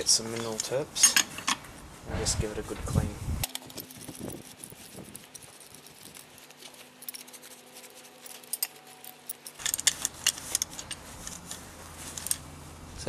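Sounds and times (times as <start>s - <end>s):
rag rustling: 0.0s - 13.0s
small metallic clinks: 3.4s - 12.5s.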